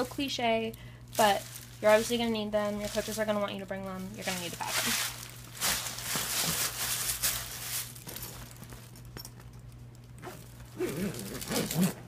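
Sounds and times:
metallic pom-poms rustling: 0.0 - 9.1
zipper being pulled shut: 10.2 - 12.0.

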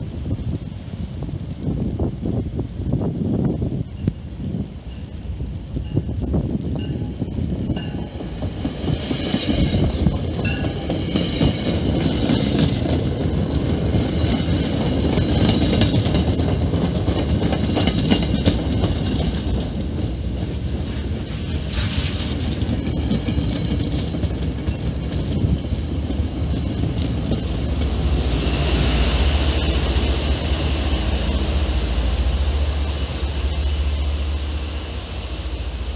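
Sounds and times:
diesel locomotive engine rumble: 0.0 - 35.9
train wheels clacking on rails: 6.8 - 31.6.

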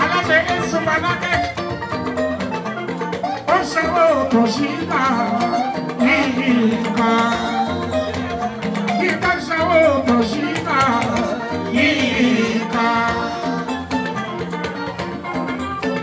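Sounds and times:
drum-led band: 0.0 - 16.0
man singing into microphone: 3.5 - 8.3, 8.9 - 13.7.

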